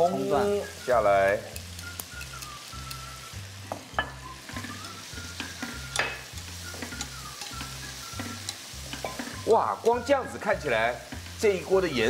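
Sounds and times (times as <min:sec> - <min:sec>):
food sizzling in a hot pan: 0:00.0 - 0:12.0
chopsticks clicking against pan: 0:01.4 - 0:03.1, 0:04.5 - 0:10.1.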